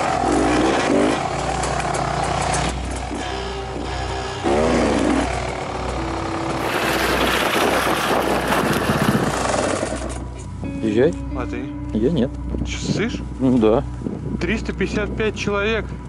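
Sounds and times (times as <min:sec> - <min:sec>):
dirt bike engines revving: 0:00.0 - 0:10.6
music playing: 0:02.4 - 0:16.0.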